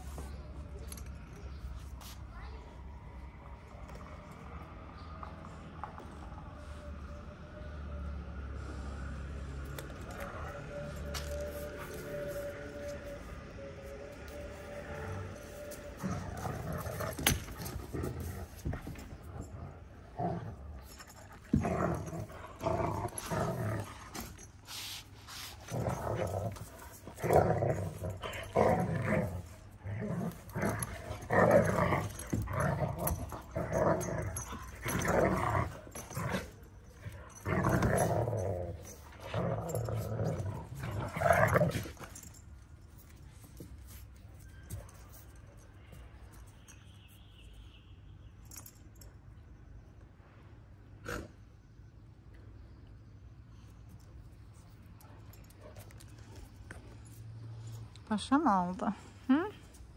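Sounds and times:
dogs growling: 14.8s - 42.4s.

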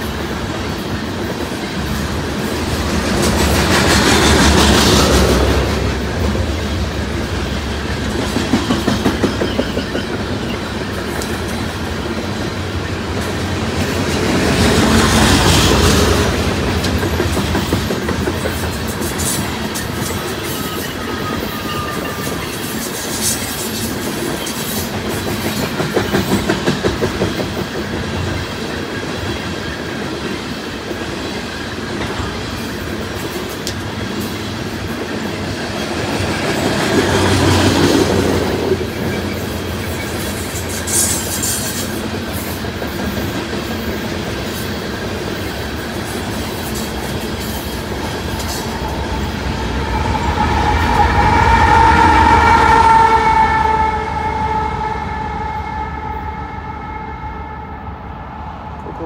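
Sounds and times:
train wheels clacking on rail joints: 0.0s - 49.2s
wheel squeals: 19.2s - 23.6s
locomotive air horn: 50.3s - 58.1s.

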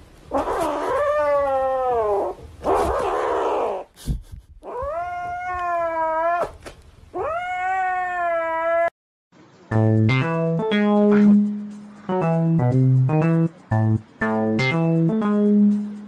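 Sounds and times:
kitten yowling meows: 0.3s - 3.9s, 4.6s - 6.6s, 7.2s - 8.9s.

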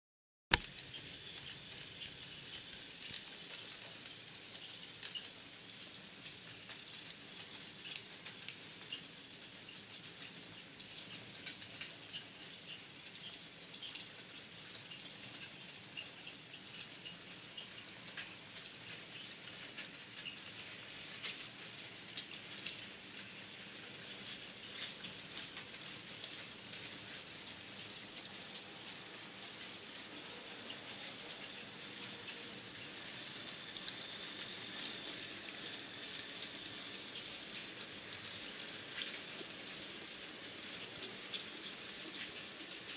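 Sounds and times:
model train whirring: 0.5s - 42.9s
wagon wheels clicking and rattling: 0.5s - 42.9s.

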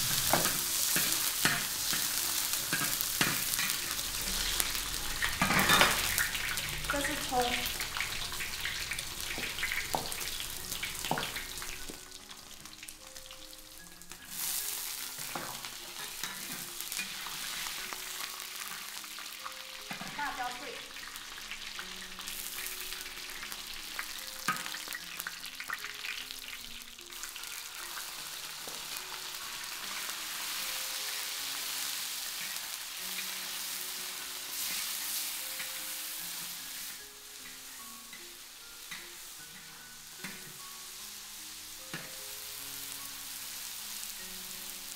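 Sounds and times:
metal spatula scraping a pan: 0.0s - 6.6s, 14.3s - 17.9s
meat sizzling in a wok: 0.0s - 44.9s
soft background music: 0.0s - 44.9s.

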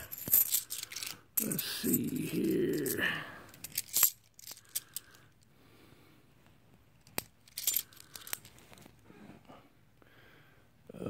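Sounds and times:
coins clinking: 0.0s - 5.2s, 7.0s - 8.5s.

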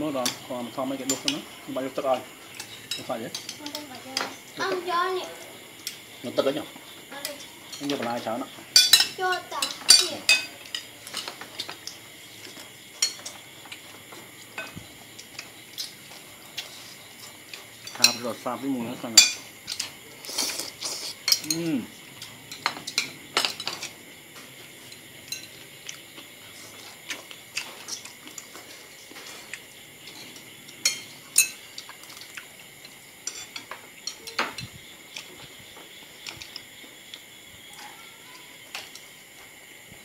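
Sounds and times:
cutlery clinking on plates: 2.5s - 4.5s, 8.7s - 18.3s, 19.1s - 21.7s, 22.5s - 26.0s, 27.2s - 35.3s.

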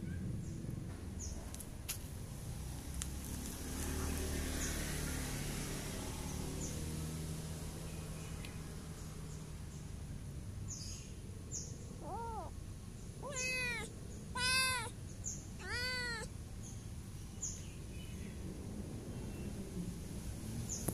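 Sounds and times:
cat meowing: 12.0s - 12.5s, 13.2s - 15.0s, 15.6s - 16.3s.

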